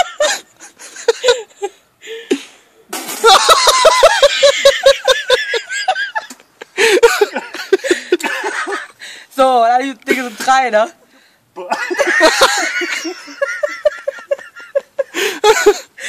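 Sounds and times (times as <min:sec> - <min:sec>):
person laughing: 0:00.0 - 0:02.5, 0:03.2 - 0:08.9, 0:11.6 - 0:15.9.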